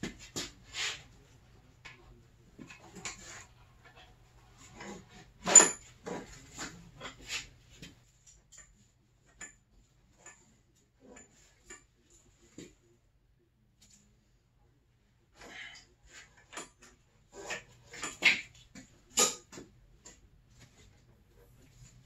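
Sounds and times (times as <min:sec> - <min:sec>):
metal tools clinking and knocking: 0:04.8 - 0:06.3, 0:17.5 - 0:18.5, 0:19.1 - 0:19.6.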